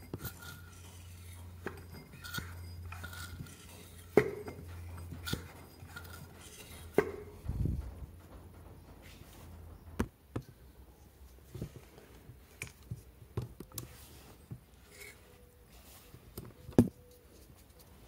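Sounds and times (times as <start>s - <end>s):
tools and parts clicking: 0.0s - 8.6s.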